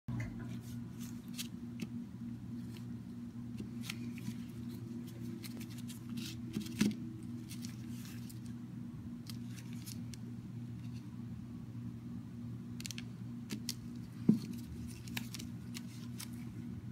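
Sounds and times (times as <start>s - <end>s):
steady low hum: 0.1s - 16.9s
gloved hands tapping and rustling: 3.6s - 8.5s, 12.8s - 16.5s.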